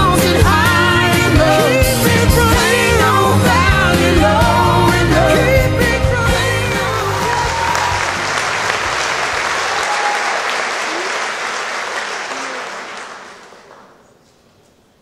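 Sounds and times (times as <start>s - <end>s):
dance music: 0.0s - 9.5s
audience applauding: 6.9s - 14.1s.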